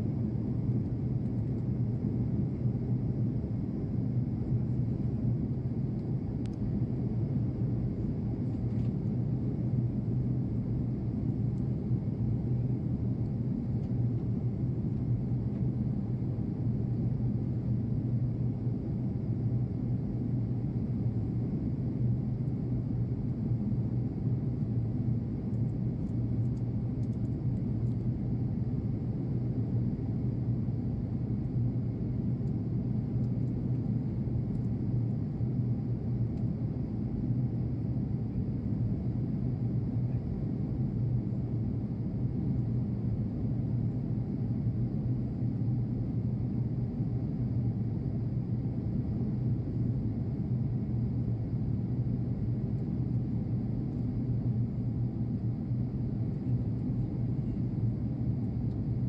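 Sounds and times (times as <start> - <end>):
airliner cabin engine drone: 0.0 - 59.0.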